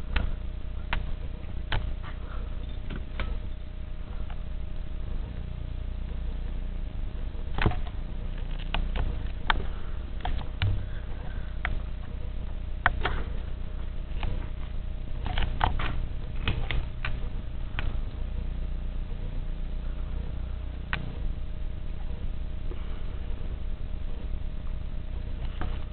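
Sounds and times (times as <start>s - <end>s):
steady low hum: 0.0s - 25.9s
sharp irregular clicks and taps: 7.5s - 12.2s, 12.8s - 13.4s.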